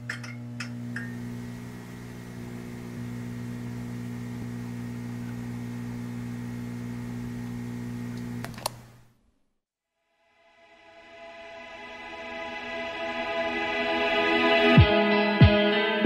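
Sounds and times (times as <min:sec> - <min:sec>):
neon sign buzzing: 0:00.0 - 0:09.1.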